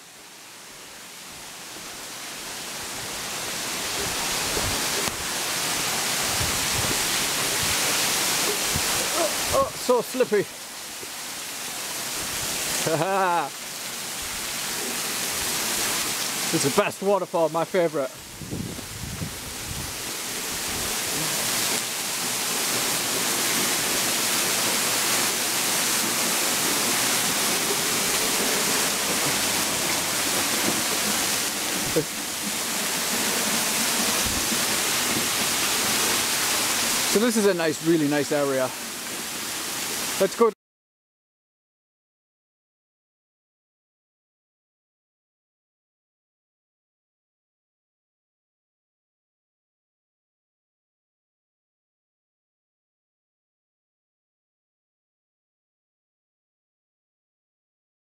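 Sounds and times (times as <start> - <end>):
waterfall plunging onto rocks: 2.9 - 11.2, 14.5 - 40.3.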